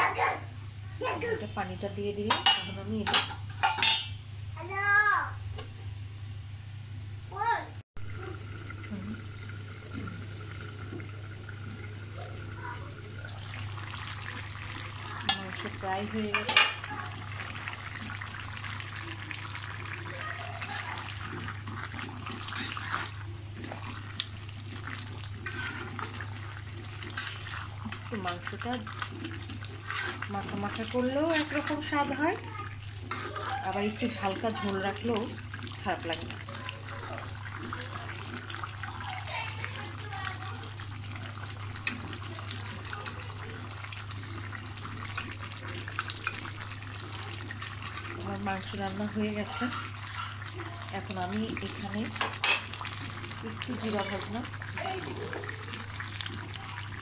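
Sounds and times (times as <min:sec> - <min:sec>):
low steady hum: 0:00.0 - 0:46.9
curry simmering and bubbling: 0:08.0 - 0:57.0
spatula scraping pan: 0:20.6 - 0:23.8, 0:25.4 - 0:34.8.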